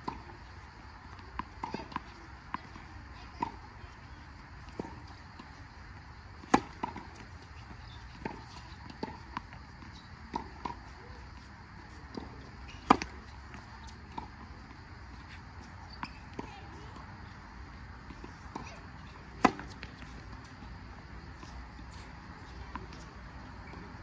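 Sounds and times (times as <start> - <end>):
racket striking tennis ball: 6.4 - 7.2, 12.2 - 14.3, 18.2 - 20.2.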